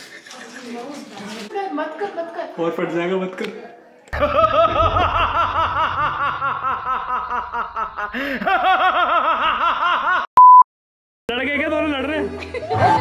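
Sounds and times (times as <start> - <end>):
hearty laughter: 4.2 - 10.3.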